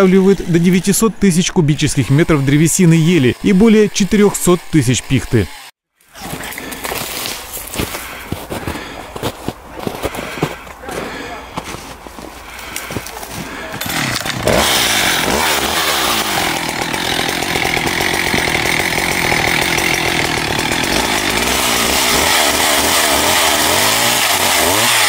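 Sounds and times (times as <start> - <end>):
chainsaw cutting wood: 0.0 - 7.4, 13.5 - 25.0.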